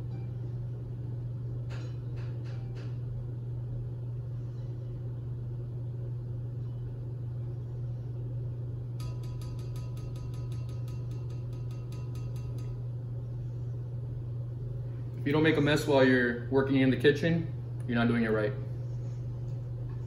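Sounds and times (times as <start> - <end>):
low hum: 0.0 - 20.0.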